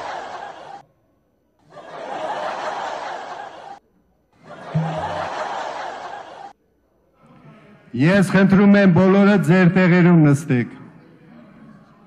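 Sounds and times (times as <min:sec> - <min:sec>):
canned audience laughter: 0:00.0 - 0:00.8, 0:01.6 - 0:03.8, 0:04.4 - 0:06.6.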